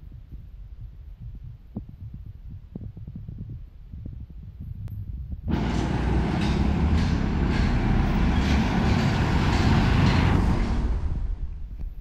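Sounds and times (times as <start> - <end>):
van driving past: 5.5 - 11.6
passing vehicles engines and tyres: 5.5 - 12.0.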